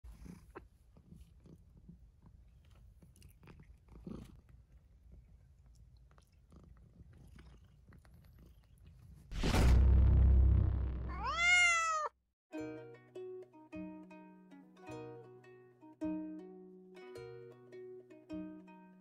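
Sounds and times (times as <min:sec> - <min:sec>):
cat licking fur: 0:00.1 - 0:09.3.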